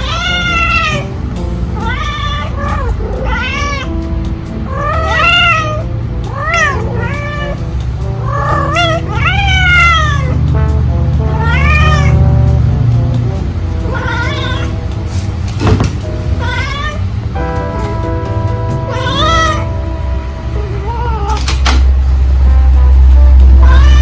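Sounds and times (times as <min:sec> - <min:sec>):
cats yowling: 0:00.0 - 0:01.1, 0:01.7 - 0:04.0, 0:04.6 - 0:07.6, 0:08.2 - 0:10.4, 0:11.3 - 0:12.2, 0:13.8 - 0:14.8, 0:16.4 - 0:17.1, 0:18.8 - 0:19.8, 0:20.5 - 0:21.5, 0:23.6 - 0:24.0
background music: 0:00.0 - 0:24.0.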